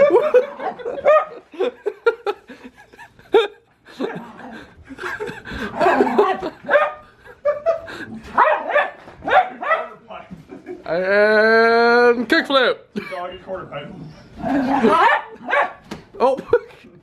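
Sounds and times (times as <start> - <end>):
people laughing: 0.0 - 8.3, 10.3 - 11.2, 14.5 - 15.5.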